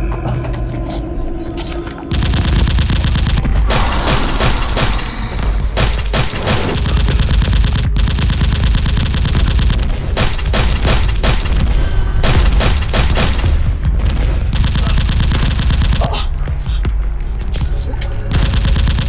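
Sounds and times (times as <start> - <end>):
deep rumble: 0.0 - 19.0
automatic gunfire: 2.1 - 5.2, 5.8 - 11.6, 12.2 - 13.6.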